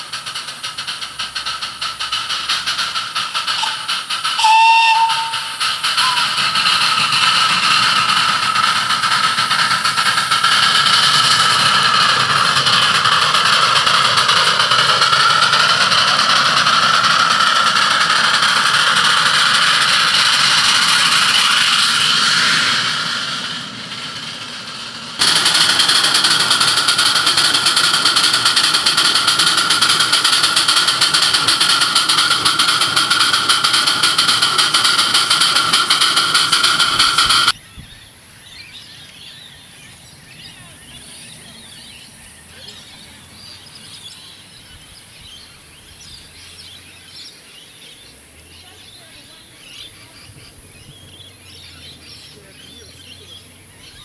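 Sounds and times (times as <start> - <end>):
loud steady steam hiss: 0.0 - 54.0
steam whistle toot: 3.6 - 6.4.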